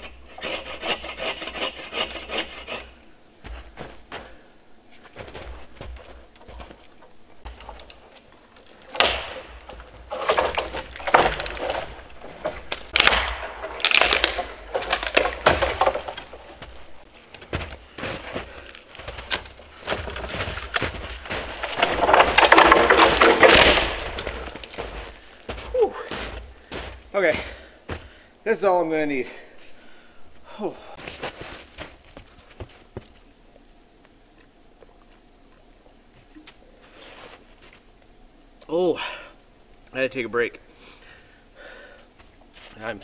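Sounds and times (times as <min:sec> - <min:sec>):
wood cracking and breaking: 0:05.2 - 0:27.0
trunk scraping through branches: 0:07.4 - 0:27.1.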